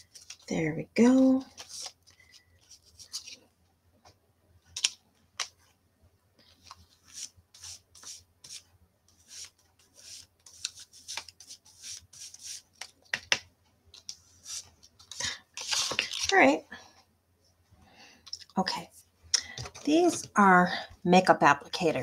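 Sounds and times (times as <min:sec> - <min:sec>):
brush scratching on cardstock: 0:07.0 - 0:08.6, 0:09.2 - 0:12.7.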